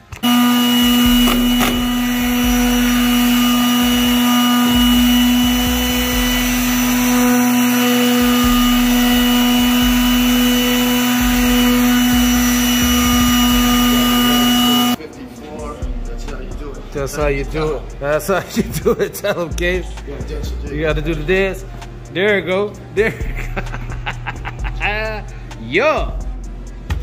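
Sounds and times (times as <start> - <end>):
palm sander motor hum: 0.0 - 15.0.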